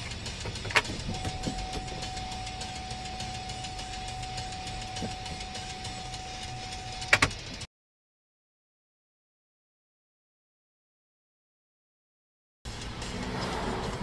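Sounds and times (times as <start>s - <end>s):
car engine and road rumble: 0.0s - 7.7s, 12.7s - 14.0s
thin steady high tone: 1.0s - 7.1s.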